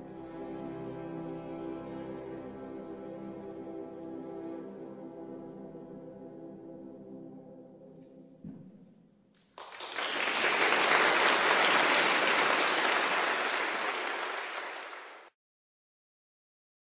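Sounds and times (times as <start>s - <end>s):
audience applause: 9.4s - 15.3s.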